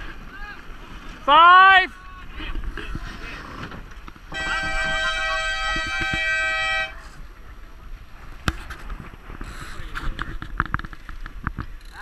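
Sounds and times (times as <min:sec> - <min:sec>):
water noise: 0:00.0 - 0:12.0
wind: 0:00.0 - 0:12.0
signal horn blast: 0:04.3 - 0:07.1.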